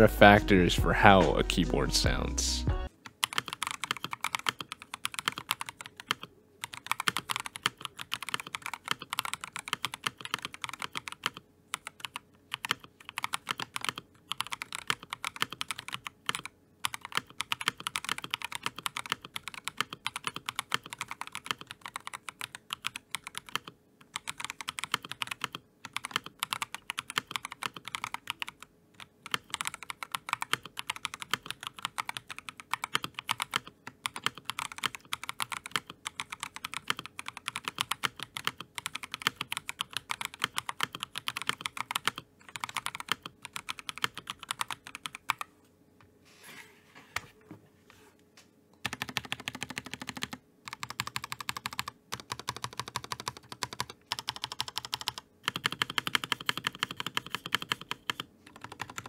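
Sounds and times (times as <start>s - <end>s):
mechanical keyboard typing: 3.2s - 45.5s, 48.8s - 59.0s.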